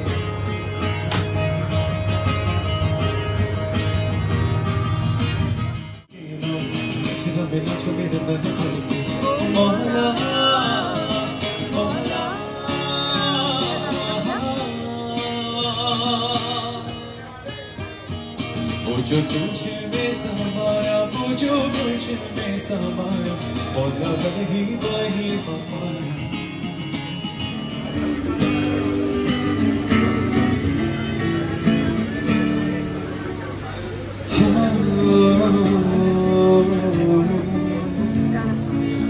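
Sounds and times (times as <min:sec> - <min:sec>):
acoustic guitar strumming: 0:00.0 - 0:39.0
man singing: 0:06.1 - 0:17.4, 0:18.6 - 0:29.0, 0:34.2 - 0:39.0.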